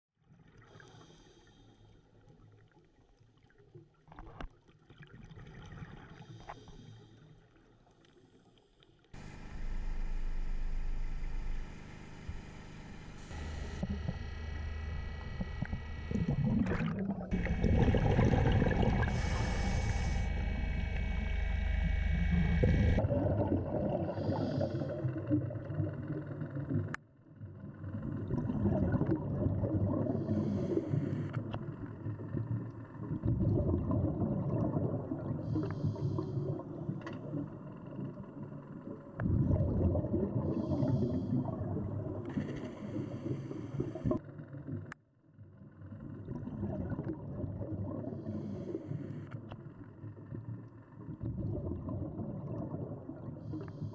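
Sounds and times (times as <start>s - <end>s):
regulator inhale hiss: 0.7s - 2.0s, 6.2s - 7.3s, 18.7s - 21.3s, 30.2s - 31.4s, 35.5s - 36.6s, 42.6s - 44.2s, 48.2s - 49.4s, 53.4s - 53.9s
underwater machinery noise with whine: 8.1s - 53.9s
regulator bubbles gurgling: 9.2s - 45.0s, 45.6s - 53.9s.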